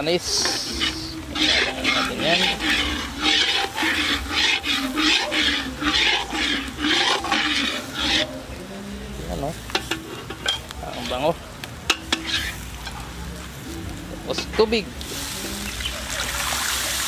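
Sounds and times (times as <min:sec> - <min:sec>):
spoon stirring in cooking pot: 0:00.2 - 0:08.5, 0:09.7 - 0:11.1, 0:11.8 - 0:13.0.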